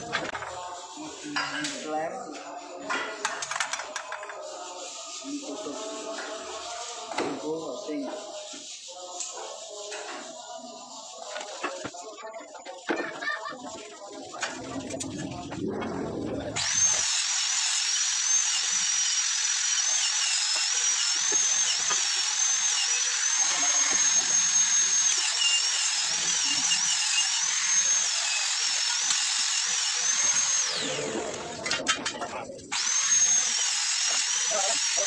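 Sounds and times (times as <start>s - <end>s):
power tool high whine: 16.6s - 31.5s, 32.7s - 35.0s.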